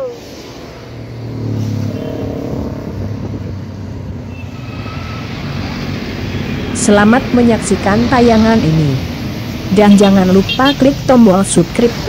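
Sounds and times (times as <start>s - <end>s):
bus diesel engine droning: 0.0s - 12.0s
traffic noise: 0.0s - 12.0s.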